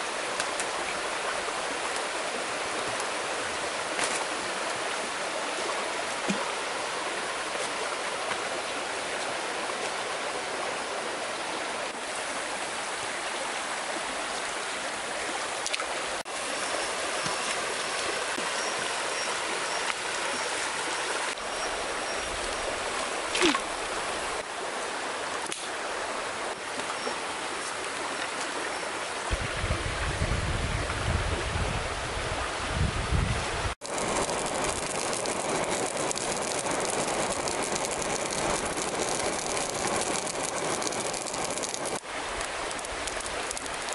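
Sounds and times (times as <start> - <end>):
stream rushing over rocks: 0.0 - 29.4, 33.8 - 43.9
wind rumbling on microphone: 29.3 - 43.9.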